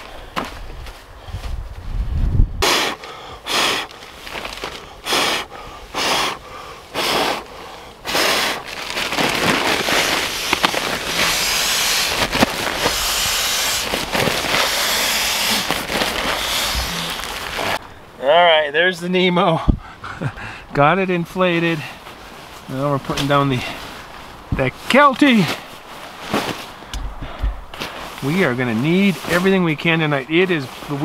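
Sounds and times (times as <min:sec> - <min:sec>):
rushing air: 0:00.0 - 0:18.2
breath puffs into pump sack: 0:02.6 - 0:17.8
crinkling nylon: 0:02.9 - 0:17.8, 0:21.2 - 0:26.9, 0:27.6 - 0:31.0.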